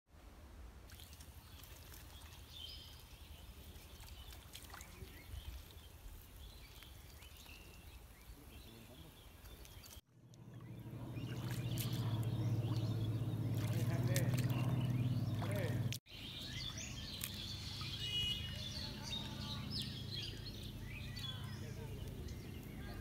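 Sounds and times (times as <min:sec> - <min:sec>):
faint bird chirps: 0:01.0 - 0:23.0
low steady rumble: 0:10.1 - 0:23.0.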